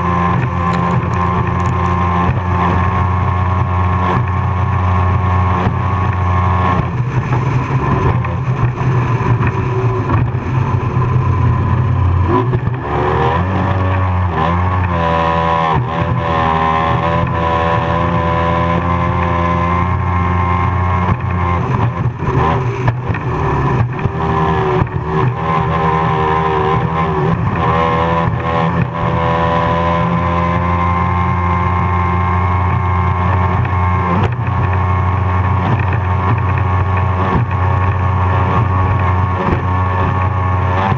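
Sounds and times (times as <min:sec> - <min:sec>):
powerboat engine running hard: 0:00.0 - 0:40.9
wind: 0:00.0 - 0:40.9.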